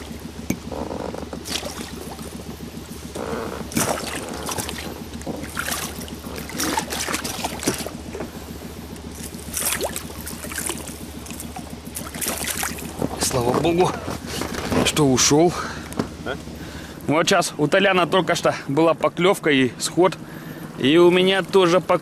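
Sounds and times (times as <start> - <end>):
water splashing at boat side: 0.0 - 15.1
steady low hum: 0.0 - 22.0.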